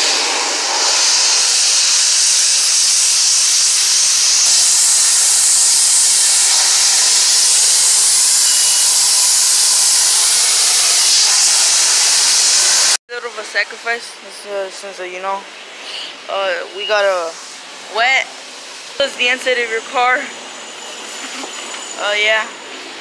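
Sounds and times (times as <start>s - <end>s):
pressure washer spraying water: 0.0s - 13.0s.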